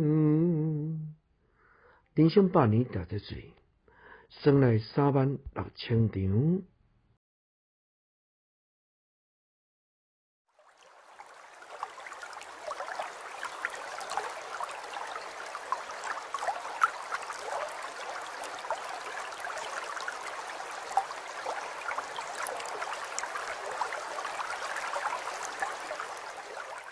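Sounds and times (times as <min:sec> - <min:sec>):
small water splashes: 0:10.5 - 0:26.9
water trickling: 0:10.5 - 0:26.9.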